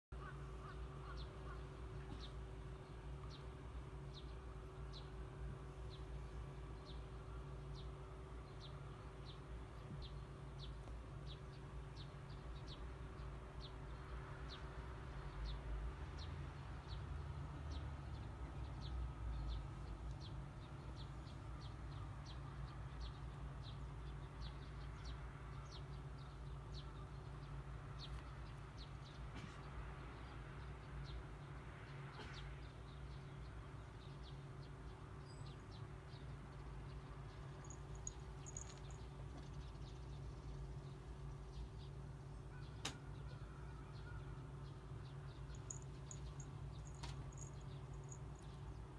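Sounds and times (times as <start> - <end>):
small bird chirping: 34.1 - 42.0, 44.0 - 48.9.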